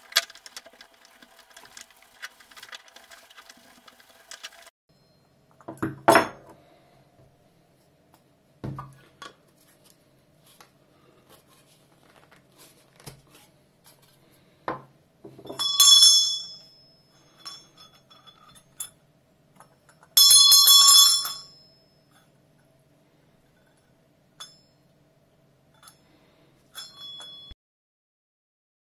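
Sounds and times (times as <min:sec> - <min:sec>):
bell being handled knocks: 0:15.4 - 0:16.8
hand bell ringing: 0:15.6 - 0:18.2, 0:20.2 - 0:21.9, 0:26.8 - 0:27.6.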